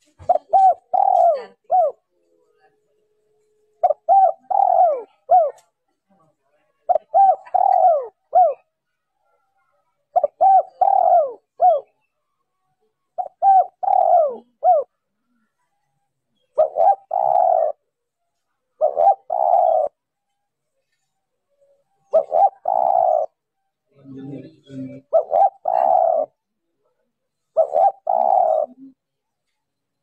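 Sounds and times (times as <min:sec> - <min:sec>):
dove cooing: 0:00.0 - 0:02.2, 0:03.8 - 0:05.7, 0:06.9 - 0:08.8, 0:10.1 - 0:12.1, 0:13.1 - 0:15.4, 0:16.4 - 0:17.9, 0:18.8 - 0:20.0, 0:21.7 - 0:23.5, 0:24.2 - 0:26.4, 0:27.4 - 0:29.2.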